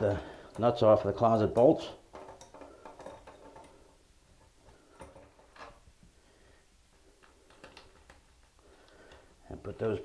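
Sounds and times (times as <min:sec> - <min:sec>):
faint metal clicks: 0:07.0 - 0:09.3.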